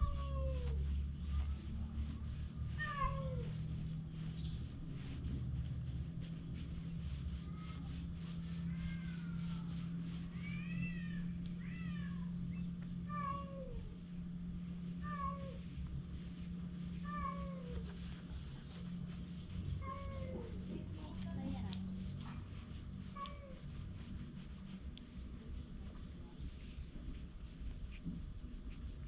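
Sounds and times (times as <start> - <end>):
low hum: 0.0 - 29.0
cat meowing: 2.8 - 3.5, 13.1 - 13.9, 17.0 - 17.9.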